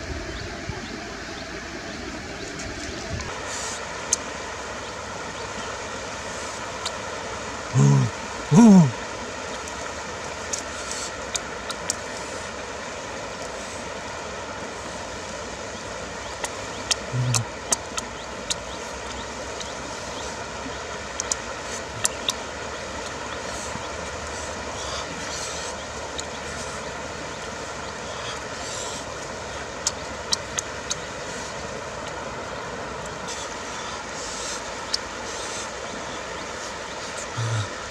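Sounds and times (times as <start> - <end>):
rushing outdoor background noise: 0.0 - 37.9
person humming: 7.8 - 9.0, 17.1 - 17.5, 37.3 - 37.8.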